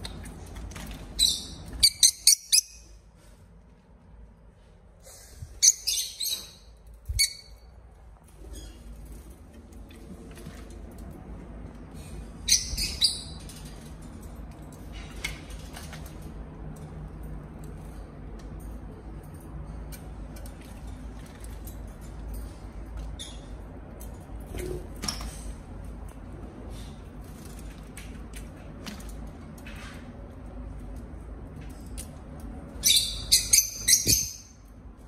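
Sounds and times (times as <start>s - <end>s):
bird high-pitched chirps: 1.2s - 2.9s, 5.6s - 7.6s, 32.8s - 34.6s.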